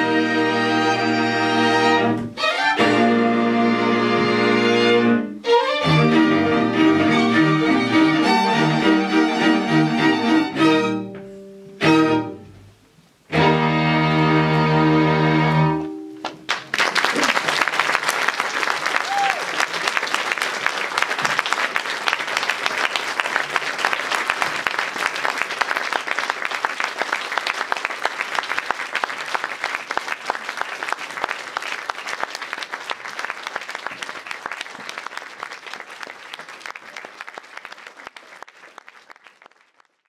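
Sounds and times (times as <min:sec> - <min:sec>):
audience applauding: 0:16.2 - 0:40.0.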